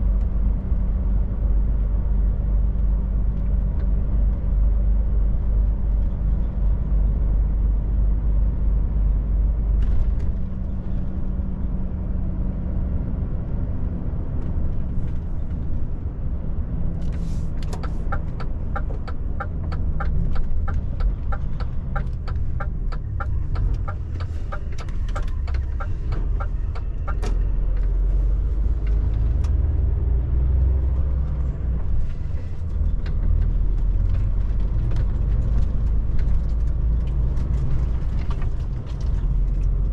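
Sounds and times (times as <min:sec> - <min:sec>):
truck engine and road rumble: 0:00.0 - 0:39.9
turn signal ticking: 0:17.6 - 0:29.6.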